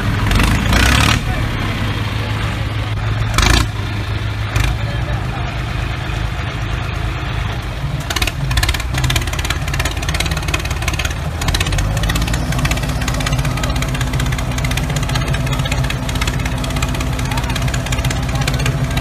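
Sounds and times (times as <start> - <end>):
truck engine running: 0.0 - 19.0
fast rattle: 8.0 - 19.0.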